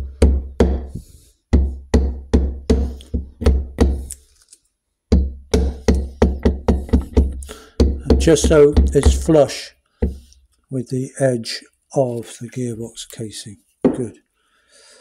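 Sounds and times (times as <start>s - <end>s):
wooden handle knocking on metal: 5.1s - 9.3s.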